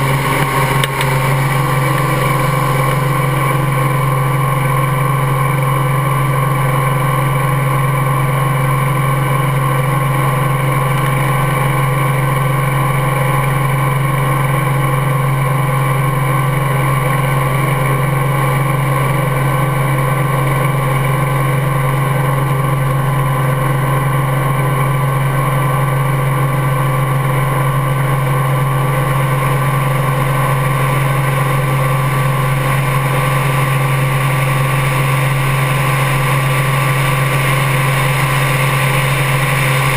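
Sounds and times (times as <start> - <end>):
helicopter engine and rotors: 0.0 - 39.9.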